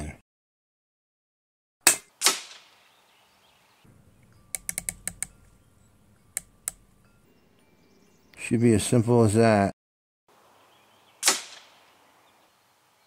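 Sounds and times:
air rifle shot: 1.8 - 2.7, 11.2 - 11.7
scope turret clicks: 4.2 - 5.3.

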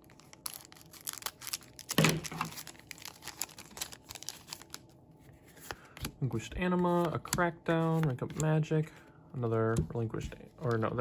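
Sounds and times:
foil wrapper crinkling and tearing: 0.0 - 5.0
trading cards being handled: 0.1 - 9.0.

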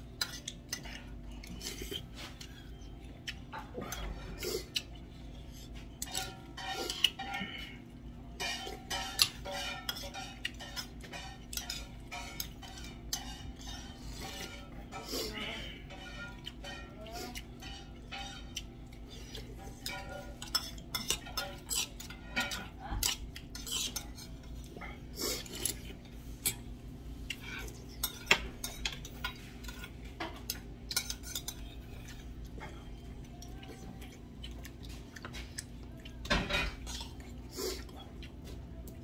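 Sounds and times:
metal spoon clinking on steel bowls: 5.8 - 7.8, 8.4 - 24.8, 27.3 - 37.3.

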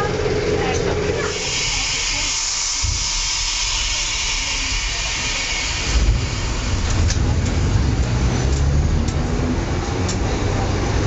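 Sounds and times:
tram motor and wheels rumbling: 0.0 - 11.0
high hiss: 1.4 - 6.4.

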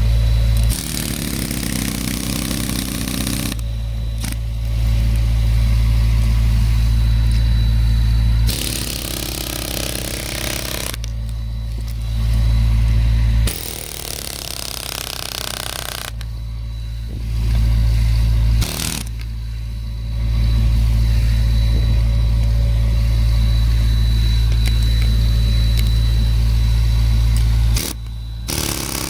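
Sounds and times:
air hammer buzzing into wood: 0.6 - 3.6, 8.5 - 11.1, 13.4 - 16.2, 18.6 - 19.2, 27.7 - 29.0.

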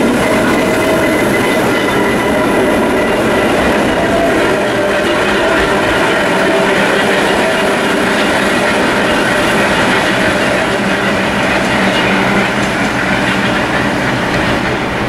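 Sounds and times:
train wheels rolling on track: 0.0 - 15.0.

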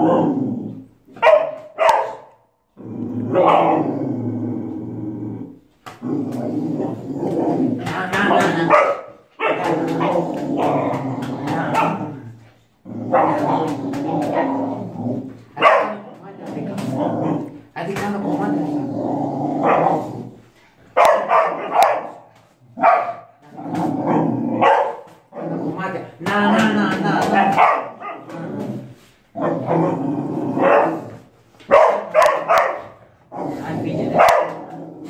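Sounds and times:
dog barking: 1.2 - 2.5, 3.4 - 3.8, 8.3 - 10.2, 15.6 - 16.0, 19.6 - 20.0, 21.0 - 23.4, 24.6 - 25.2, 27.4 - 28.4, 30.6 - 31.0, 31.7 - 33.0, 34.2 - 34.7.

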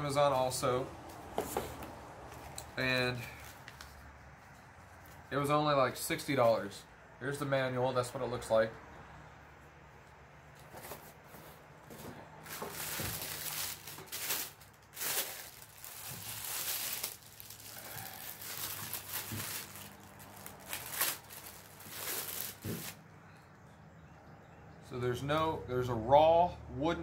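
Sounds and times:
cardboard box being moved: 1.3 - 1.9
plastic bag crinkling: 12.4 - 23.0.

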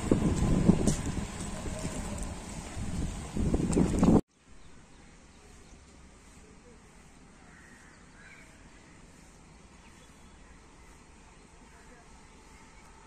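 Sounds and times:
faint outdoor background noise: 0.0 - 13.0
short bird calls: 7.2 - 9.3.

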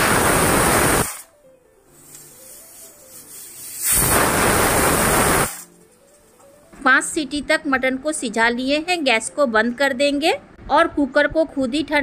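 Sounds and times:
pressure cooker whistle hiss: 0.0 - 1.2, 3.5 - 5.7.

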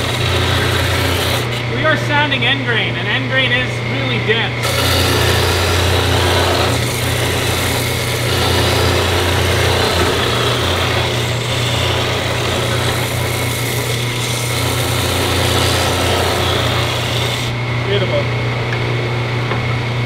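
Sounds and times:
wood grinding against sander: 0.0 - 1.9, 4.6 - 17.6
sander motor humming: 3.9 - 18.0.

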